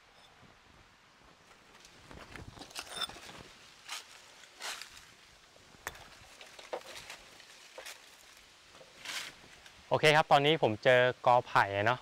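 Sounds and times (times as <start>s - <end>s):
leaf litter rustling: 2.6s - 5.1s, 6.0s - 9.7s
footsteps in leaf litter: 2.8s - 5.2s, 6.1s - 9.6s.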